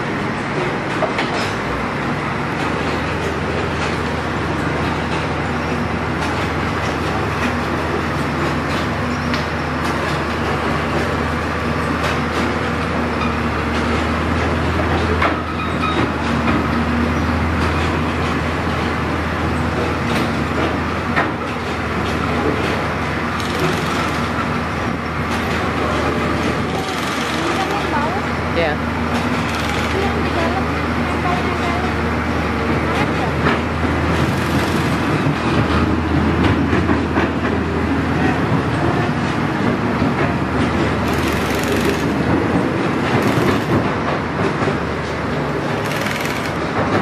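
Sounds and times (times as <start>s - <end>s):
train engine droning: 0.0s - 47.0s.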